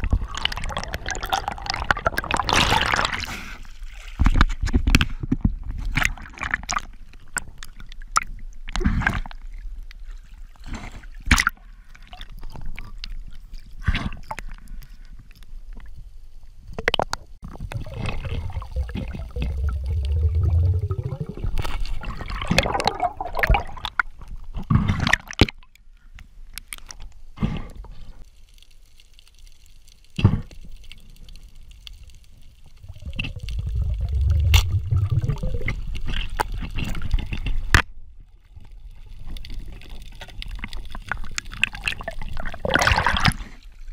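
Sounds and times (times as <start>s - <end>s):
water splashing and sloshing: 0.0s - 16.1s, 16.7s - 25.8s, 30.4s - 43.9s
low rumbling: 17.7s - 21.6s, 32.6s - 36.3s.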